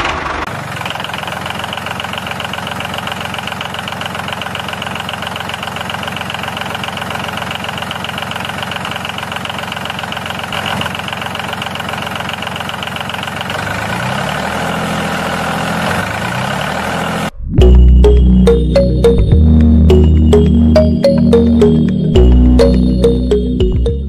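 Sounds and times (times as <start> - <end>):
engine running with fast chug: 0.0 - 17.3.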